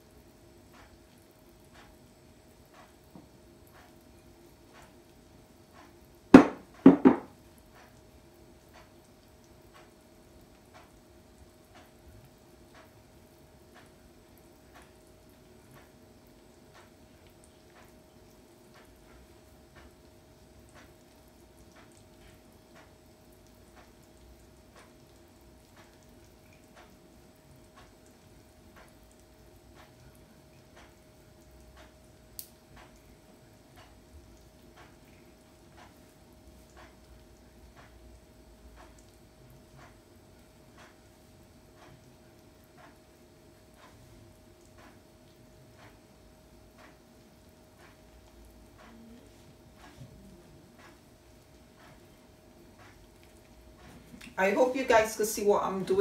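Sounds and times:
faint soft ticking: 0.0 - 56.0
faint steady hum: 0.0 - 56.0
bowls knocking: 6.4 - 7.3.

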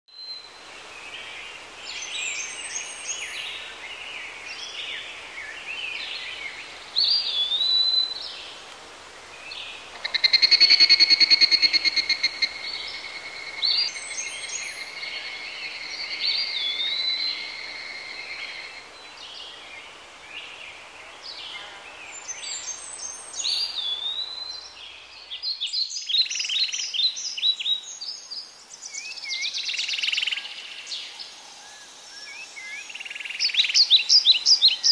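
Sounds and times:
wild birds chirping and whistling: 9.4 - 20.7, 21.3 - 34.9.

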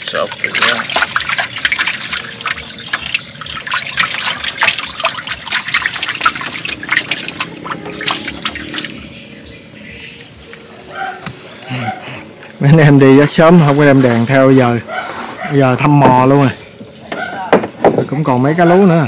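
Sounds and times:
water splashing and sloshing: 0.0 - 11.5.

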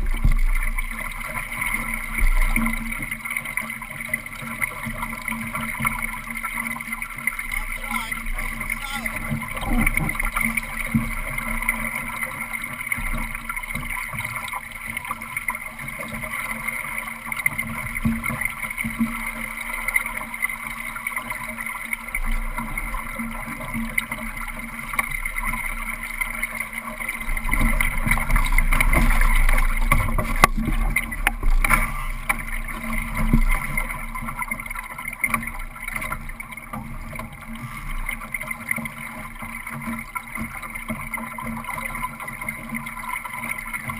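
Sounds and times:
water rushing along boat hull: 0.0 - 43.9.

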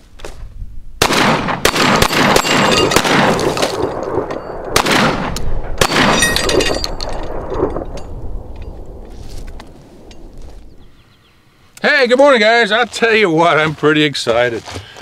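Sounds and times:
shotgun shots: 1.0 - 8.0.

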